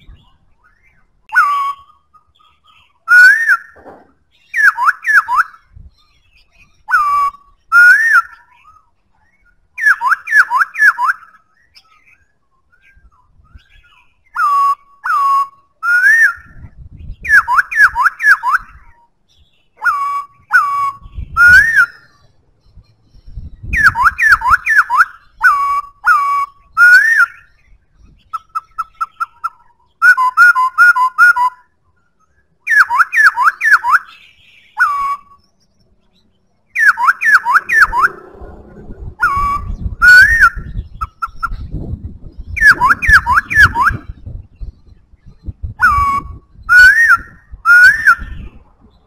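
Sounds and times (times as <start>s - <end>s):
bird singing whistled phrases: 0.0s - 38.2s, 39.2s - 41.8s, 42.4s - 48.6s
bird piping notes: 0.0s - 49.0s
low rumble: 37.4s - 46.7s.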